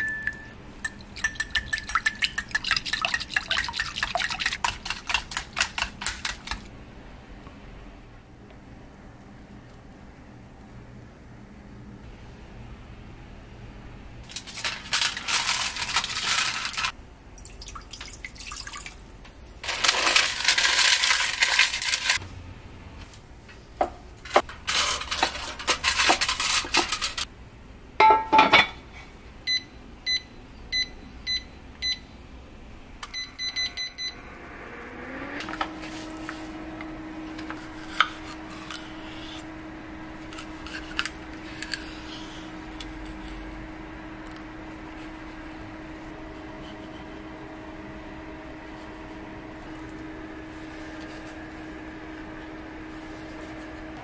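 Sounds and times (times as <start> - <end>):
iron lid clanking onto pot: 28.0 - 28.8
heater hum rising in pitch: 30.0 - 54.0.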